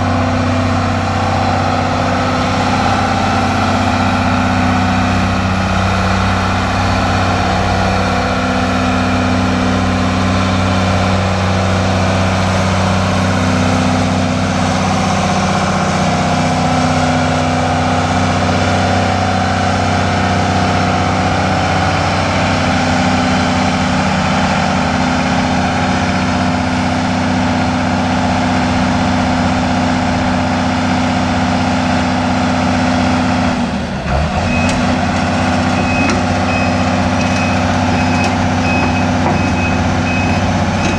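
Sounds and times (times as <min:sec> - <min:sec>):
excavator diesel engine running: 0:00.0 - 0:40.9
travel alarm beeping: 0:35.8 - 0:40.9.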